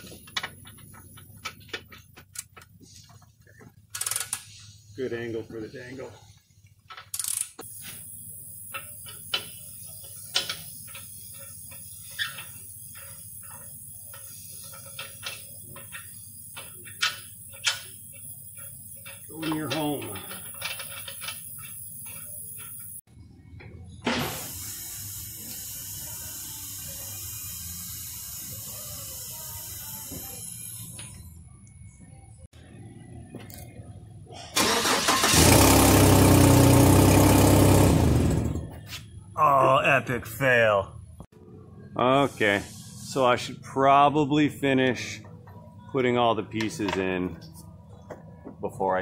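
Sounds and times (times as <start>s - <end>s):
hand tools tapping on metal: 8.7s - 23.0s.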